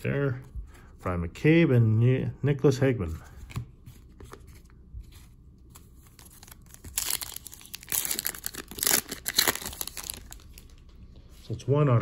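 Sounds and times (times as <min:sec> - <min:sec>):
wrapper crinkling and tearing: 0:06.0 - 0:10.8.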